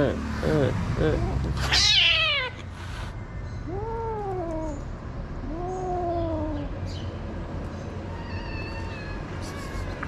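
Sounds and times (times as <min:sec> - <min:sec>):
cat yowling: 0:01.6 - 0:02.6, 0:08.1 - 0:10.0.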